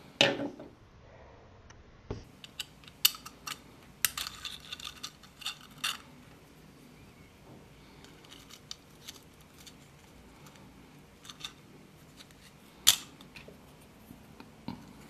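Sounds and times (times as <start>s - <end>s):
plastic parts clicking and clattering: 2.4s - 6.1s, 8.0s - 13.5s.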